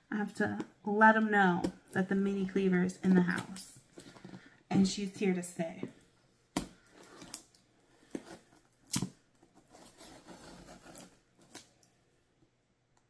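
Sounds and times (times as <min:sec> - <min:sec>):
blade scraping through cardboard tape: 0:09.7 - 0:11.2.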